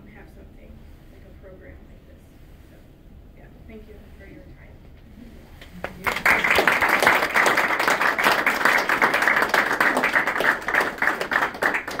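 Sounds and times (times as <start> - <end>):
hands clapping close to microphone: 5.8 - 12.0
audience applauding: 6.0 - 12.0.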